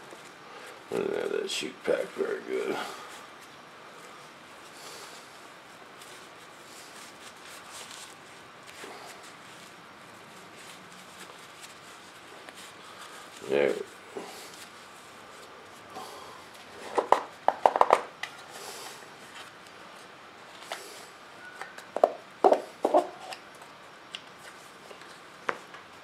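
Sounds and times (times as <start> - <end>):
fabric rustling: 0.0 - 17.5.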